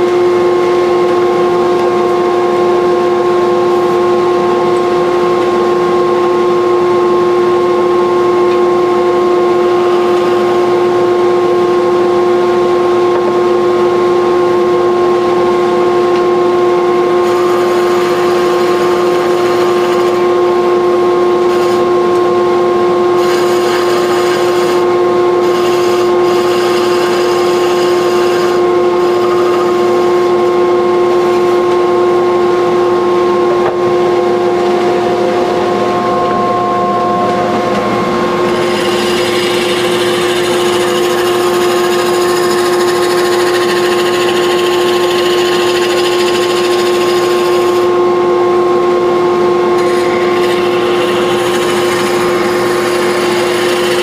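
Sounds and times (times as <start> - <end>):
wood lathe whine: 0.0 - 54.0
chisel cutting spinning wood: 9.4 - 12.0, 17.0 - 20.8, 21.4 - 22.2, 23.1 - 31.8, 35.0 - 48.0, 49.8 - 54.0.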